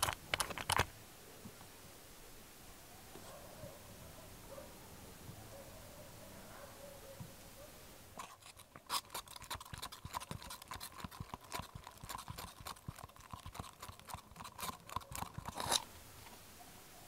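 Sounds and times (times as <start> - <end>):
stirring stick scraping plastic cup: 8.2 - 15.9.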